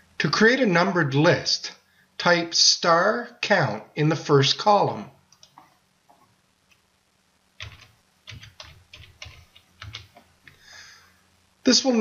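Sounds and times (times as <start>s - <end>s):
computer keyboard typing: 7.6s - 10.3s.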